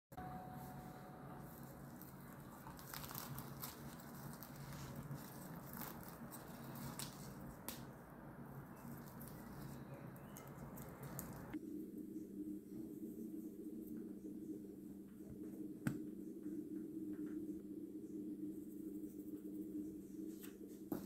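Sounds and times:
low steady hum: 0.1s - 21.0s
flatbread tearing crackles: 1.9s - 7.9s, 8.8s - 11.6s.

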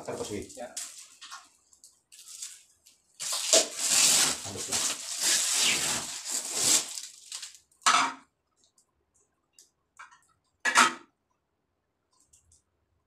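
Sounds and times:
plastic wrap crinkling: 0.0s - 7.8s.

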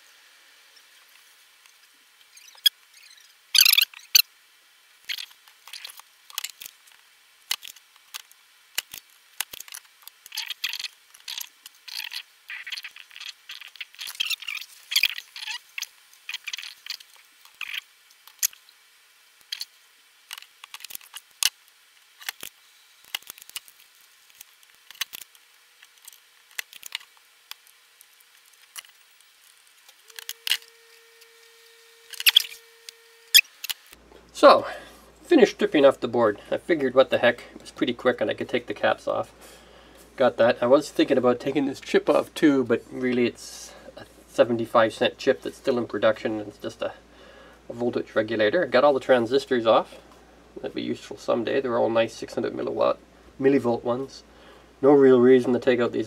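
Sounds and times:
sharp clicks and snaps: 5.0s - 18.6s, 22.2s - 30.6s
circuit board being handled: 5.1s - 18.6s, 19.4s - 33.9s.

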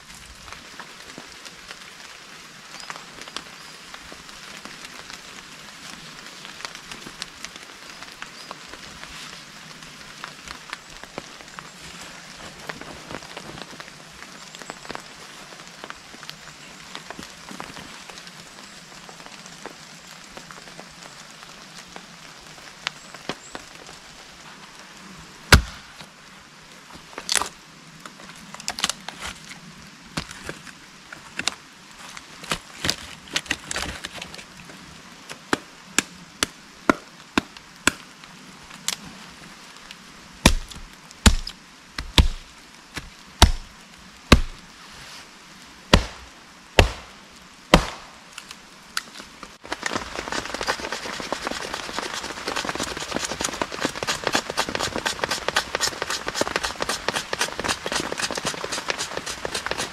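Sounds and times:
firewood splitting knocks: 40.5s - 42.4s, 43.4s - 43.7s, 44.3s - 44.6s
knife shaving a stick: 49.7s - 59.9s.

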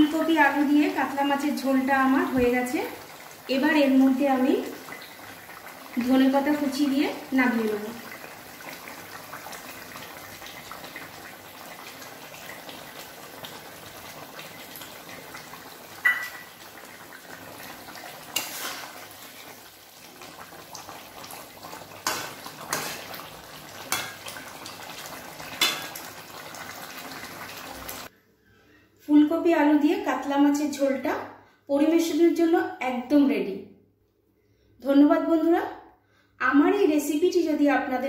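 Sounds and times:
metal spatula clinking on pan: 16.0s - 16.5s.

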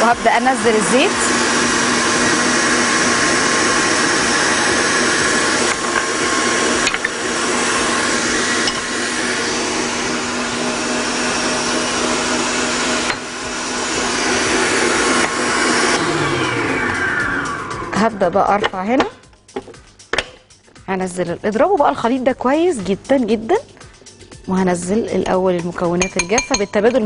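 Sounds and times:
stand mixer motor hum: 0.0s - 18.0s
whisk beating in metal bowl: 25.3s - 27.0s.

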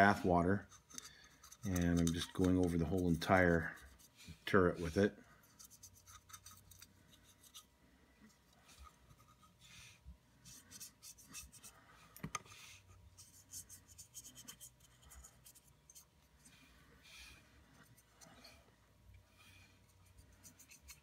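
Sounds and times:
paintbrush scratching on plastic: 0.0s - 7.7s, 10.4s - 11.8s, 12.7s - 18.6s, 19.3s - 21.0s.

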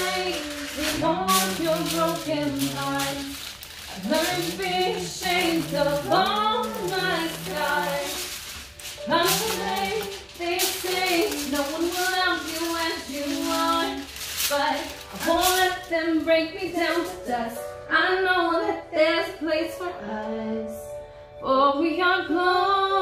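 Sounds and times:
person singing: 0.0s - 23.0s.

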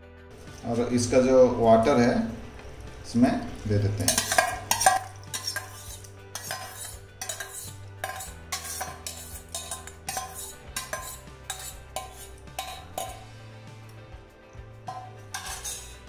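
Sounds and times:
background music with bass: 0.0s - 16.0s
spoon scraping steel bowl: 4.0s - 13.3s, 14.9s - 16.0s.

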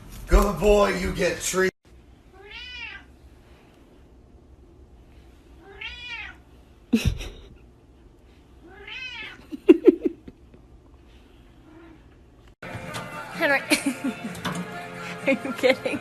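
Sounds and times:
cat meowing: 2.3s - 3.1s, 5.6s - 6.4s, 8.6s - 9.5s.

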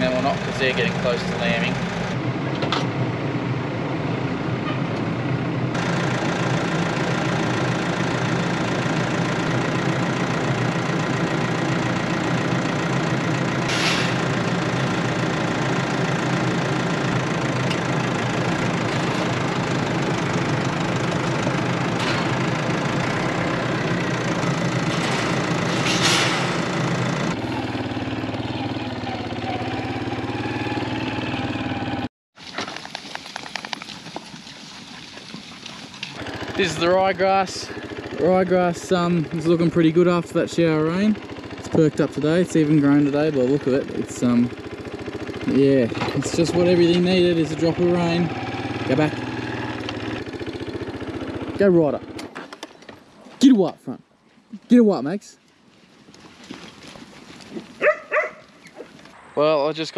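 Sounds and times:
tractor engine running: 0.0s - 53.8s, 56.2s - 59.9s.

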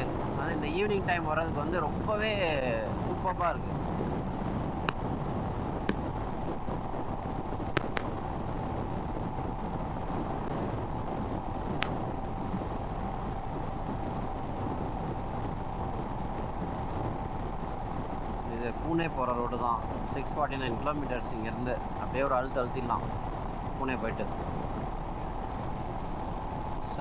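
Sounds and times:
wind rush on microphone: 0.0s - 27.0s
motorcycle engine at speed: 4.0s - 18.2s
sharp clicks: 7.8s - 8.1s.

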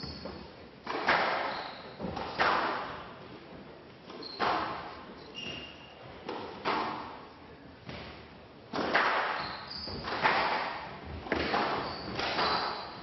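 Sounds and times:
squash ball hitting rackets and walls: 0.0s - 3.2s, 4.0s - 13.0s.

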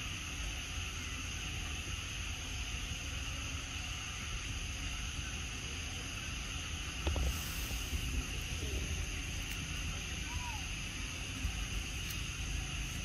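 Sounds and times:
high hiss: 0.0s - 13.0s.

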